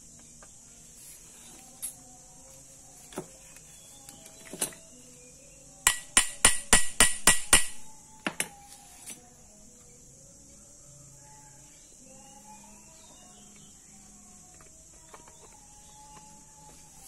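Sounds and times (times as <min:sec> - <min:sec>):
hammer tapping on metal: 0:05.9 - 0:08.6.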